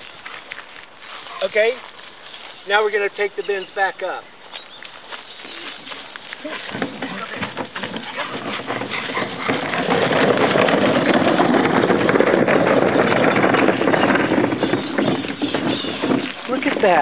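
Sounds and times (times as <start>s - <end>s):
wheelie bin wheels rumbling: 5.9s - 17.0s.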